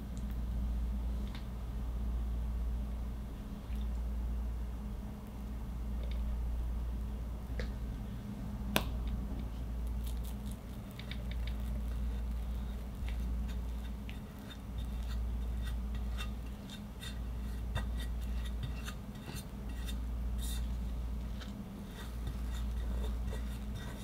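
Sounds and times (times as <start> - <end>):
low steady hum: 0.0 - 24.0
spatula spreading buttercream: 9.9 - 24.0.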